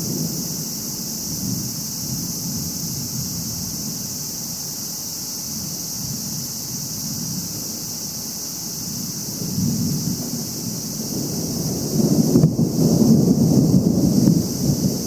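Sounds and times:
distant thunder rumble: 0.0 - 4.0, 8.9 - 15.0
steady high hiss: 0.0 - 15.0.

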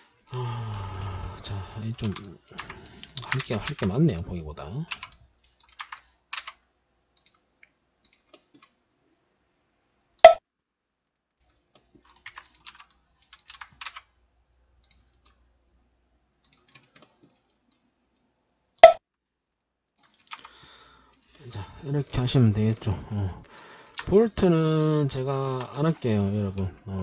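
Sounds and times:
computer keyboard keystrokes: 1.7 - 6.6, 12.0 - 14.1.

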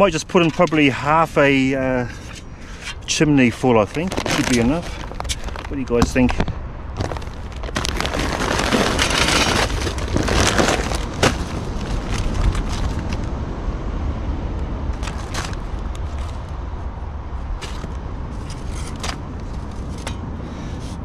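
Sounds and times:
wind rumble on microphone: 0.0 - 21.0
plastic bag rustling: 3.5 - 13.3, 15.0 - 16.4.

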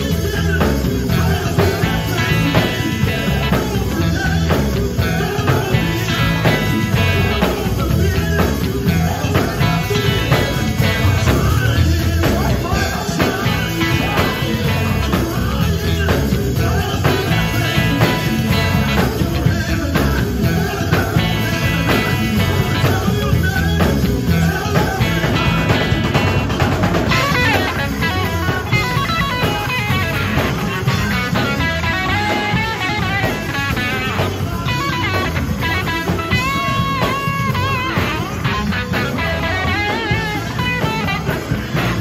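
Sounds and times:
bass guitar: 0.0 - 42.0
drum kit: 0.0 - 42.0
electric guitar: 0.0 - 42.0
person singing lead vocals: 0.0 - 42.0.

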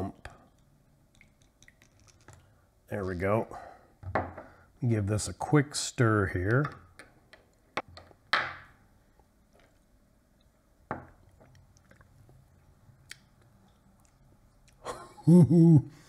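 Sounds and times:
soft sipping: 11.2 - 14.8.

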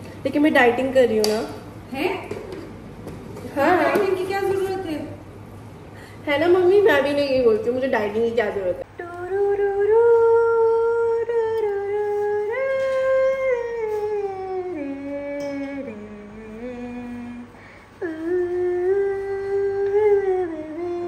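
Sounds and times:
woman humming: 8.8 - 21.0.

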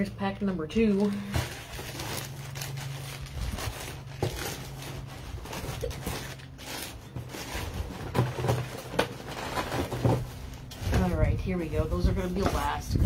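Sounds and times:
packaging rustling and knocking: 0.9 - 11.2.

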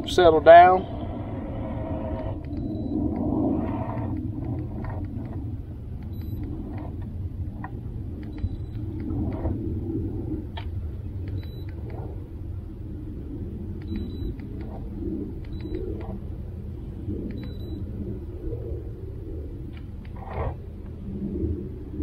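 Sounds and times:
electric trolling motor humming: 0.0 - 12.4.

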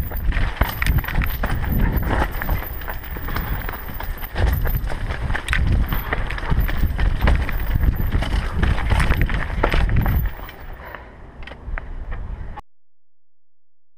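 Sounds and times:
mountain bike rattling over rocks: 0.0 - 10.8
wind on camera: 0.0 - 10.8.

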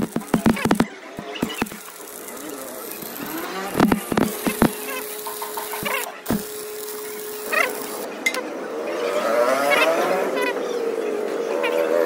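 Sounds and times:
sharp metallic clicks: 0.0 - 6.6
welding arc crackling: 0.0 - 8.1.

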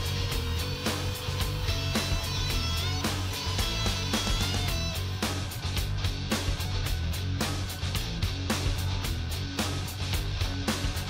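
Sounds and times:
background music with steady beat: 0.0 - 11.0
sustained bass: 0.0 - 11.0.

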